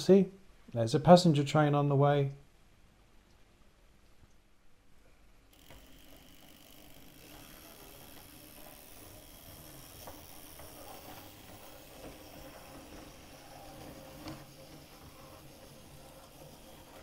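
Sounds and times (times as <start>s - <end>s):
model train motor whirring: 5.5s - 17.0s
wheels clicking over track: 5.6s - 17.0s.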